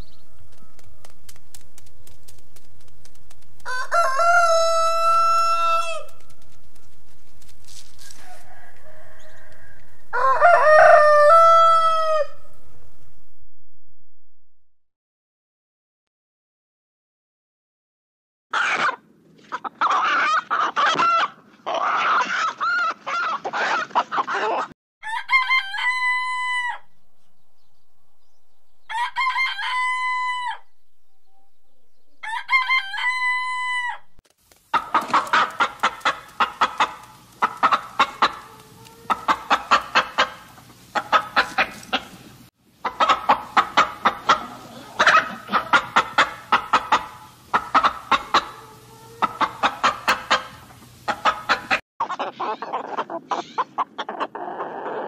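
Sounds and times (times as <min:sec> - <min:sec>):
rooster crowing: 0:03.6 - 0:06.2, 0:08.0 - 0:12.6, 0:25.0 - 0:28.2, 0:28.8 - 0:30.7, 0:32.2 - 0:34.2
rooster wavering calls: 0:03.6 - 0:06.3, 0:08.0 - 0:12.6, 0:19.8 - 0:27.1, 0:28.8 - 0:31.5, 0:32.2 - 0:34.2, 0:37.5 - 0:40.3, 0:47.8 - 0:50.5
rooster clucking: 0:08.0 - 0:12.6, 0:18.6 - 0:26.9, 0:34.7 - 0:55.0.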